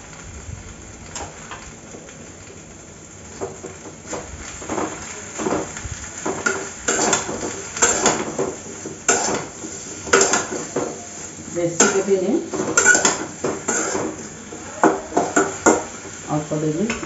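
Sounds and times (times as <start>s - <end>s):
metal spatula scraping metal pan: 9.0s - 10.6s, 12.6s - 14.2s.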